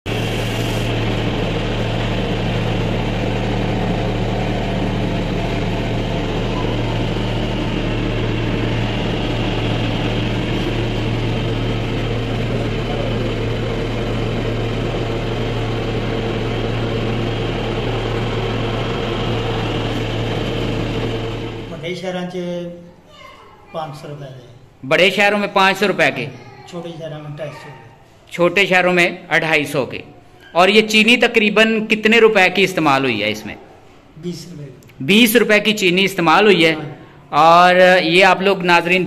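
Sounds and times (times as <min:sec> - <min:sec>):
cotton candy machine humming: 0:00.0 - 0:22.1.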